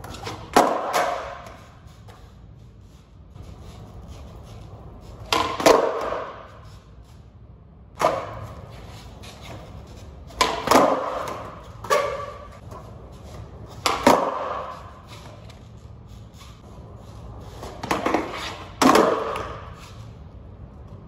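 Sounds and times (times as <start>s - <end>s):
skateboard clacking on concrete: 0.0s - 1.7s, 5.1s - 6.5s, 10.3s - 12.4s, 13.6s - 14.9s, 17.6s - 19.7s.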